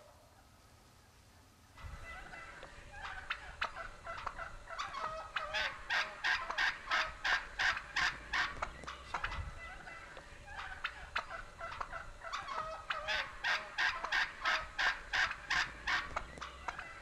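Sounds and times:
wild turkeys calling: 0.0s - 17.0s.

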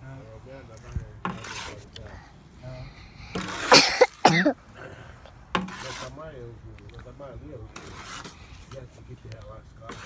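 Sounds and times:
person coughing: 3.6s - 4.6s.

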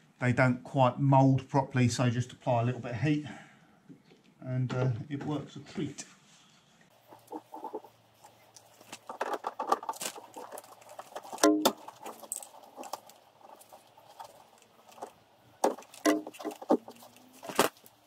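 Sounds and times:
plastic wheel arch clicking and knocking: 8.8s - 17.8s.

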